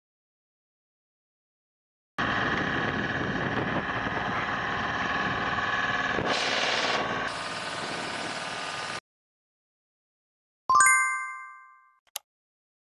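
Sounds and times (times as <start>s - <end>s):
truck engine running: 2.2s - 9.0s.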